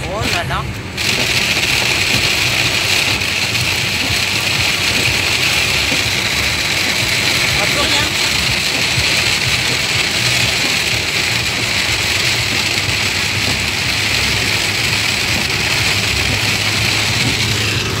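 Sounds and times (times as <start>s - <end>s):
car engine and road noise: 0.0s - 18.0s
heavy rain and wind on car: 0.0s - 18.0s.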